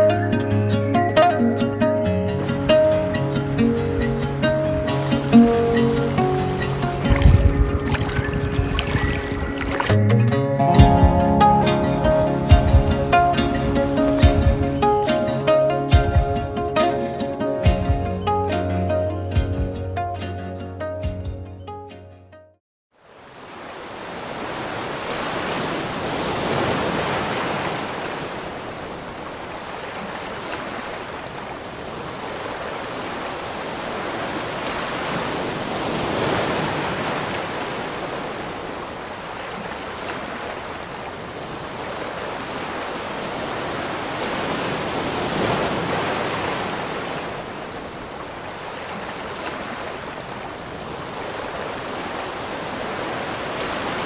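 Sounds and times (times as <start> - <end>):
gusting wind: 1.8 - 18.2, 23.1 - 54.0
waves washing onto shingle: 4.3 - 10.0, 23.0 - 54.0.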